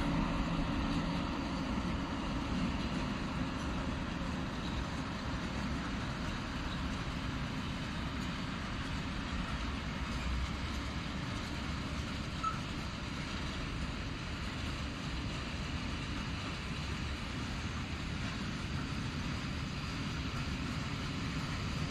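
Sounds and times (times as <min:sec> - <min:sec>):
train wheels running on rails: 0:00.0 - 0:21.9.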